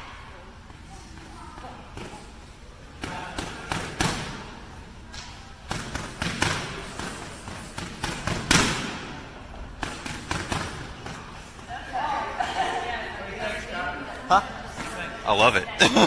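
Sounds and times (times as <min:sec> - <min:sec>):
boxing gloves smacking mitts: 0:05.7 - 0:09.2, 0:09.8 - 0:11.4.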